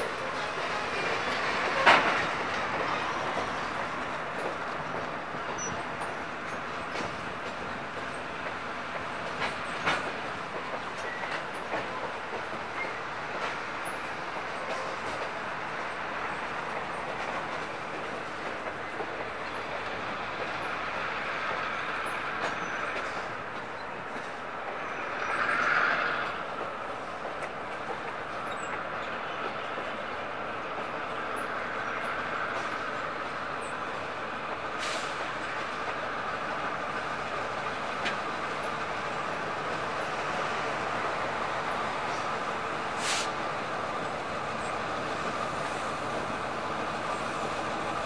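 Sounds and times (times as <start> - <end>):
train wheels rumbling on rails: 0.0 - 48.0.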